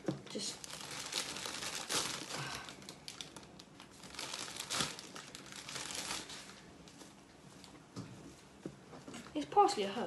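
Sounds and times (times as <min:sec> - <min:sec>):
parsley leaves rustling: 0:00.3 - 0:07.2.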